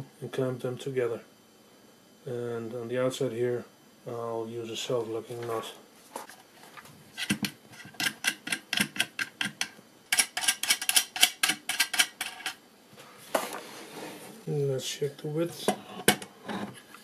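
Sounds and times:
small hard parts clicking: 7.2 - 12.6.

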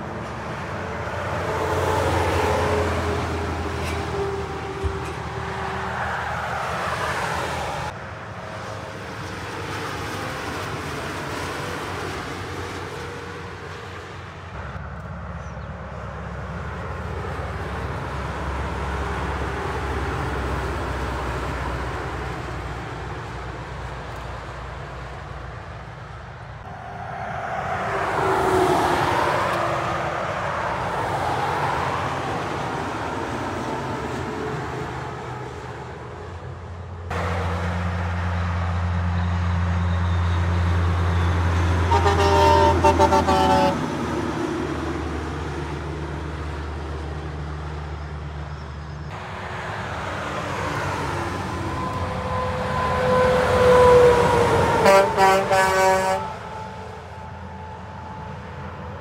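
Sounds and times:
trucks passing on a motorway: 0.0 - 59.0
truck air horn toots: 41.2 - 43.9, 51.8 - 57.7.

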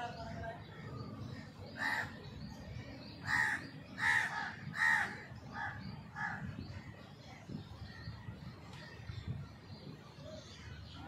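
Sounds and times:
crow cawing: 3.3 - 6.4.

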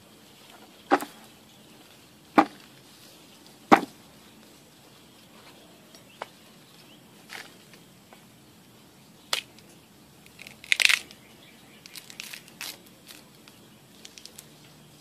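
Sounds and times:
woody knocks of roots chopped: 0.9 - 1.2, 2.4 - 2.7, 3.7 - 4.0.

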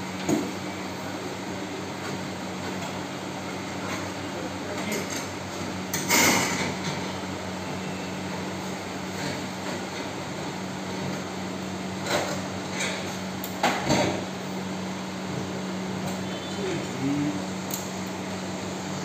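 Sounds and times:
steady low hum: 0.0 - 19.0
air conditioner unit scraping: 3.6 - 14.3.

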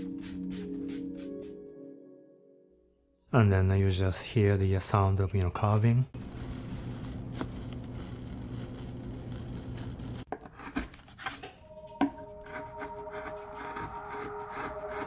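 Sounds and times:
carving tool scraping wood: 6.4 - 11.5, 12.4 - 15.0
held musical notes: 11.6 - 15.0.

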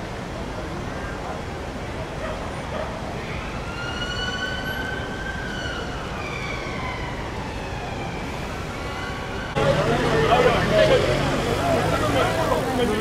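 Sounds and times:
traffic rumble: 0.0 - 13.0
emergency vehicle siren wailing: 3.4 - 13.0.

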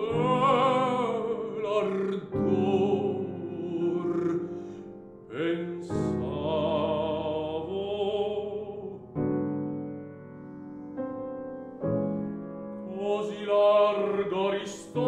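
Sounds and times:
baritone singing with vibrato: 0.0 - 9.2, 12.9 - 15.0
piano chords: 0.0 - 15.0.

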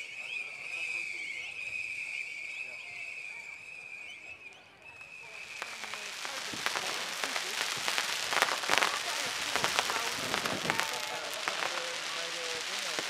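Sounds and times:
thin high whistle: 0.0 - 7.6
fireworks crackling: 5.0 - 13.0.

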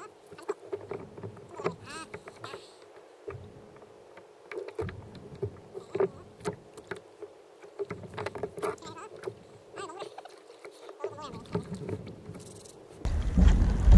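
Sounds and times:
low rumble: 13.1 - 13.9.

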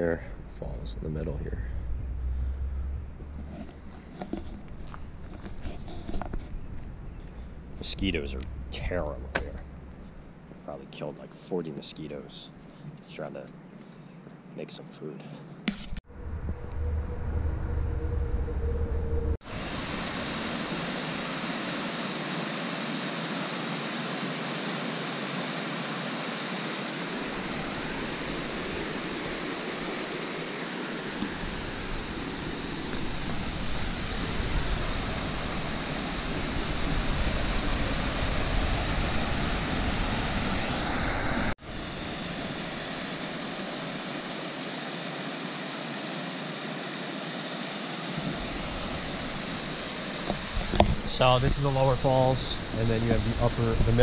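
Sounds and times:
waterfall rushing over rocks: 19.5 - 53.8.

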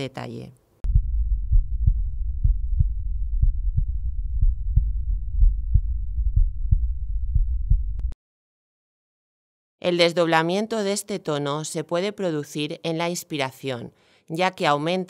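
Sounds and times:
heartbeat lub-dub: 0.8 - 8.2.

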